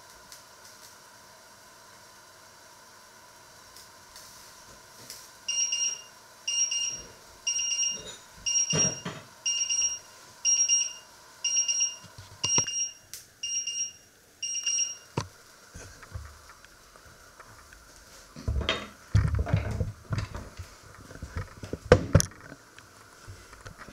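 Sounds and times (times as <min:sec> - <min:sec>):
kitchen timer alarm pips: 0:05.5 - 0:15.2.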